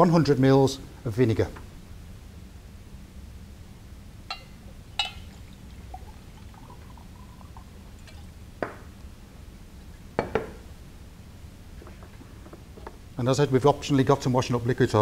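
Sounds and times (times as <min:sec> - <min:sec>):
glassware clinking: 0:04.3 - 0:08.8, 0:10.2 - 0:10.6.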